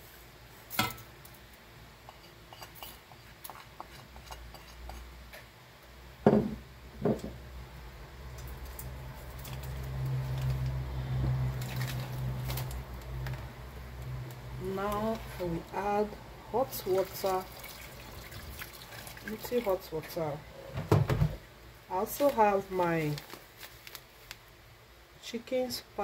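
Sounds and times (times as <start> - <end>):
low steady hum: 0.0 - 26.0
knocks on steel pot: 6.2 - 7.4
meat squishing by hand: 8.3 - 15.0.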